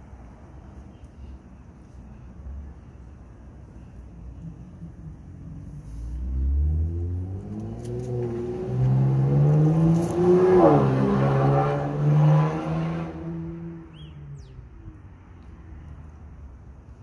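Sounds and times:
vehicle engine speeding up: 6.2 - 14.0.

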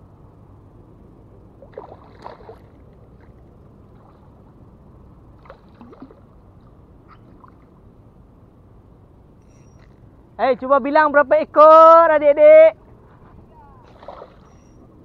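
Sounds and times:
low background hiss: 0.0 - 15.0
fish splashing in water: 1.6 - 4.5, 5.4 - 6.4, 13.8 - 14.8.

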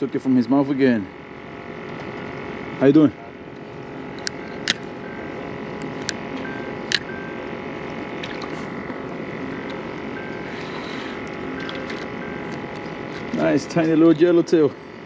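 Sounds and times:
steady mechanical hum: 0.0 - 15.0
sharp clicks: 5.8 - 7.1
water noise: 8.1 - 8.7.

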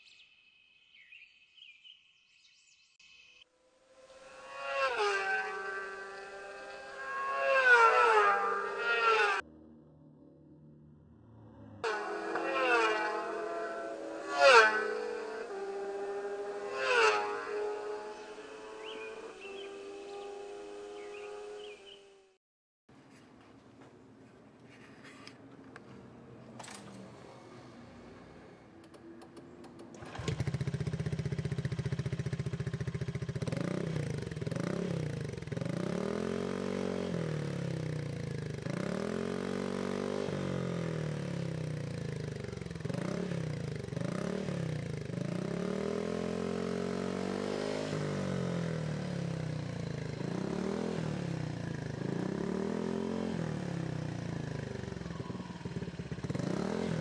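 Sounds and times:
scooter engine revving: 4.1 - 9.5, 11.8 - 22.4, 27.1 - 57.0
scooter engine starting and idling: 26.5 - 36.0, 47.6 - 57.0.

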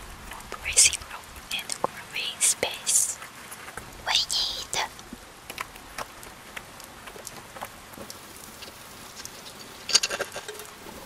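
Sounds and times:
clay pebbles clicking on a plate: 5.0 - 10.8.

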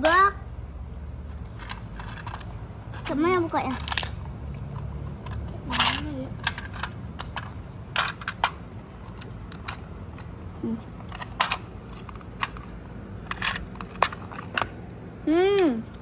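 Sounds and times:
plastic toy pieces clicking: 1.5 - 10.4, 11.0 - 14.8.

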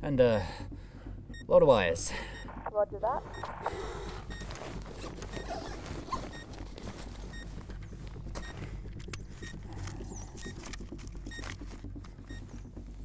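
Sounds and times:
steady low hum: 0.0 - 13.0
paper and clothing rustling: 4.4 - 8.4.

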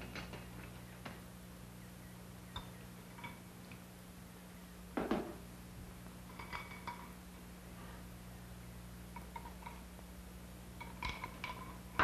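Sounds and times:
steady low hum: 0.0 - 12.0
kitchenware clinking: 6.3 - 7.2.

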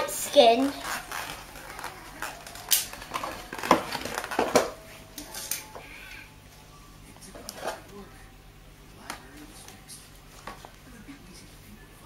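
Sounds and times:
plastic packaging crackling: 0.4 - 4.8.

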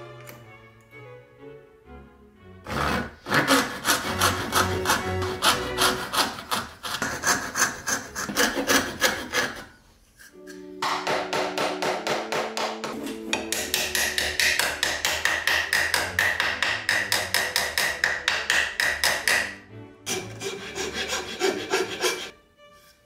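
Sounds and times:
metal file rasping: 2.7 - 10.5, 13.0 - 19.5, 20.1 - 22.3
small hammer tapping wood: 10.8 - 19.6.

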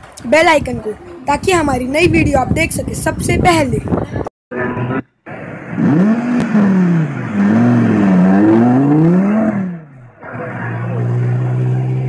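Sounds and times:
sports car engine revving: 4.6 - 12.0.

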